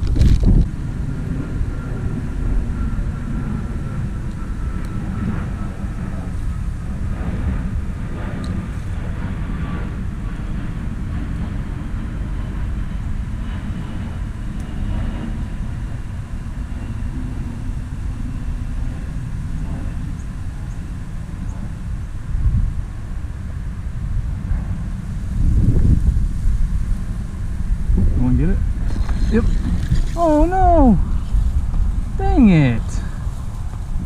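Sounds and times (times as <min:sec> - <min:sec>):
distant engine drone: 0:00.0 - 0:34.0
low rumble: 0:00.0 - 0:34.0.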